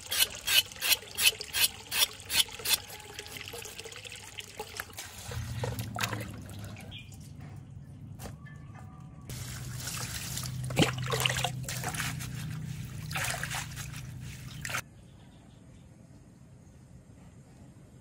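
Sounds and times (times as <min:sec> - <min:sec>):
water trickling and splashing: 0:00.0 - 0:07.3, 0:09.3 - 0:14.8.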